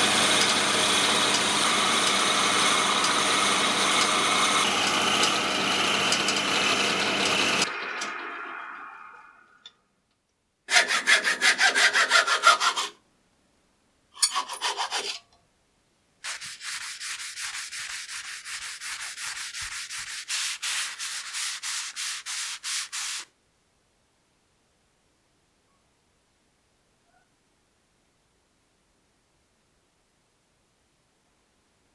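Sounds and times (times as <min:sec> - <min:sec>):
wood lathe winding down: 0:00.0 - 0:09.7
sandpaper rubbing on wood: 0:10.7 - 0:12.9, 0:14.6 - 0:15.2, 0:16.2 - 0:23.3.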